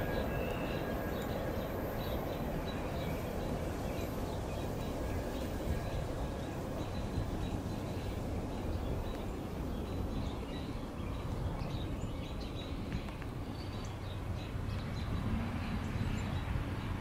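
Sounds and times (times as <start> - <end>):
small birds chirping: 0.0 - 17.0
steady low rumble: 0.0 - 17.0.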